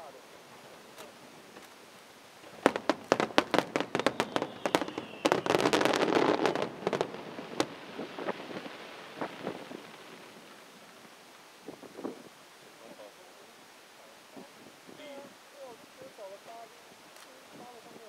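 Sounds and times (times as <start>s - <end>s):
fireworks bangs and crackle: 0.5s - 12.3s.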